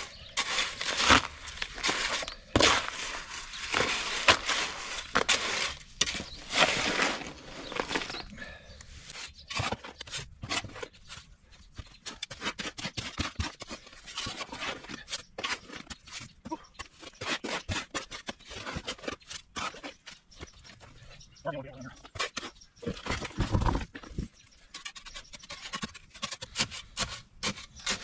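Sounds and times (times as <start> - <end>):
shovel scraping wet concrete: 0.0 - 8.3, 12.0 - 16.2, 17.0 - 20.2, 24.7 - 28.0
light scraping and tapping: 0.0 - 28.0.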